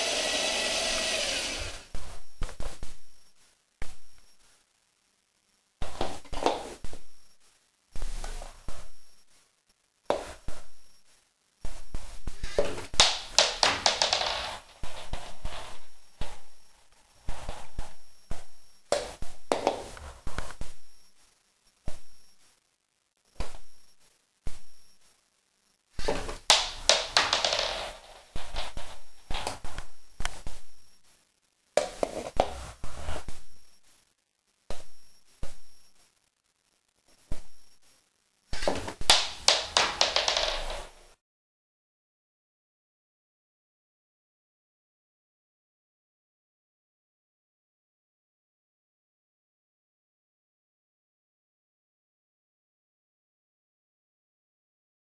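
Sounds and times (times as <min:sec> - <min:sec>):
small ball bouncing on wooden floor: 0:05.8 - 0:07.0, 0:11.7 - 0:16.6, 0:17.3 - 0:20.8, 0:26.0 - 0:30.7, 0:31.8 - 0:32.6, 0:38.6 - 0:41.0
toy catapult firing with plastic knock: 0:26.5 - 0:27.8, 0:39.1 - 0:40.7.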